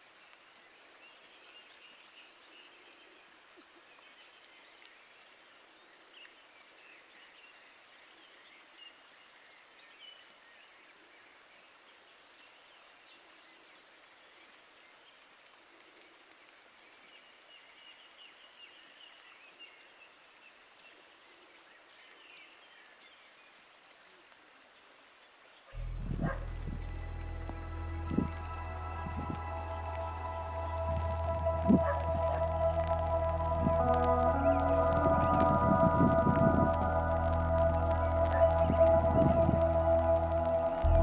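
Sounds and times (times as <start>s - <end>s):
distant birds chirping: 25.8s - 35.0s
music: 25.8s - 41.0s.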